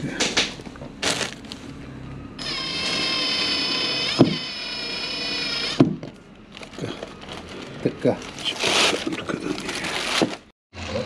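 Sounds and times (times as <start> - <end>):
cordless drill whining: 2.4 - 5.8.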